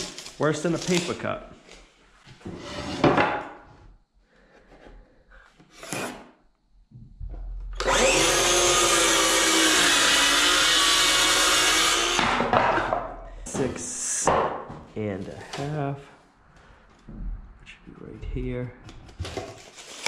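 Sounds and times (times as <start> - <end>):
circular saw cutting wood: 7.8 - 12.9.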